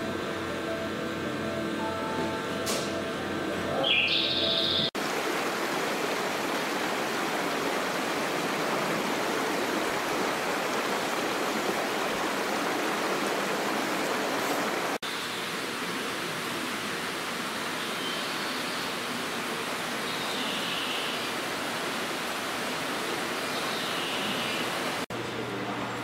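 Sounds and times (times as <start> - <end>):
running water: 4.9 - 25.1.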